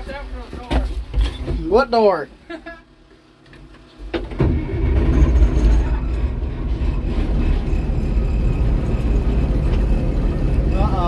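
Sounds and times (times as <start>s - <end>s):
diesel engine starting and running: 4.0s - 11.0s.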